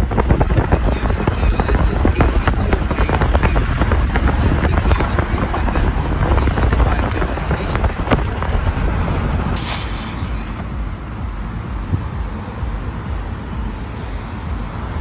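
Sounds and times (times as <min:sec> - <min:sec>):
road rumble of driving car: 0:00.0 - 0:15.0
wind buffeting microphone: 0:00.0 - 0:15.0
short burst of hiss: 0:09.6 - 0:10.6.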